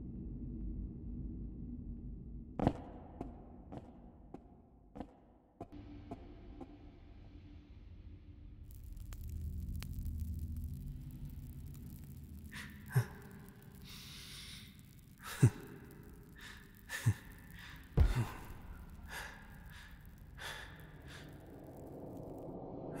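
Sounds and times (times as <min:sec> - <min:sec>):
person breathing nervously: 0:12.5 - 0:21.9.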